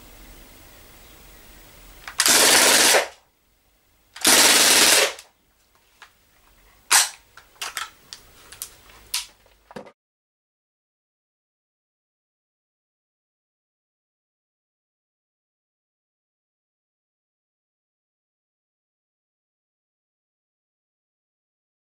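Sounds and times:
bb rifle firing full-auto bursts: 0:02.1 - 0:03.2, 0:04.2 - 0:05.2.

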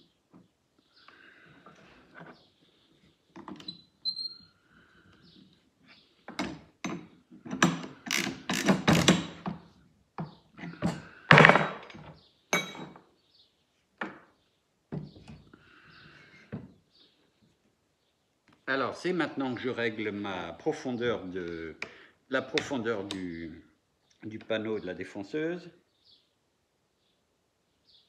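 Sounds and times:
wrench tightening collet: 0:07.5 - 0:09.4.

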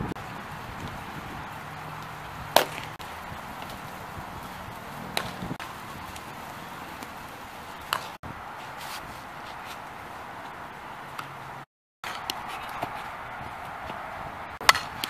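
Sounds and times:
ball smacking into glove: 0:02.5 - 0:02.9, 0:07.9 - 0:08.1.

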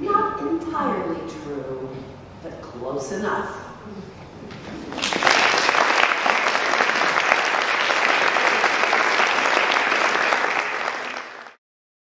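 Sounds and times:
audience applauding: 0:04.8 - 0:11.6.

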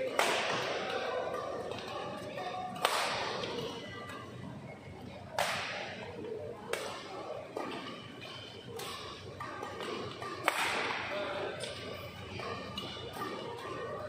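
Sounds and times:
racket hitting shuttlecock: 0:00.0 - 0:01.4, 0:02.8 - 0:03.4, 0:07.6 - 0:11.2.

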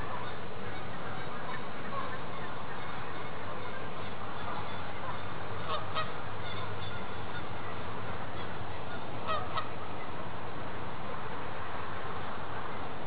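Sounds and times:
geese honking: 0:00.0 - 0:10.4
steady background noise: 0:00.0 - 0:13.0.

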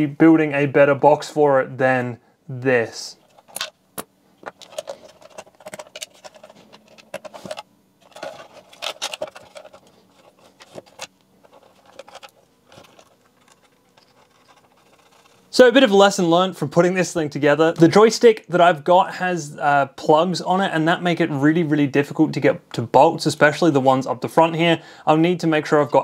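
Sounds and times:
small metal parts rattling: 0:03.2 - 0:15.4
wires rustling: 0:04.4 - 0:15.6.

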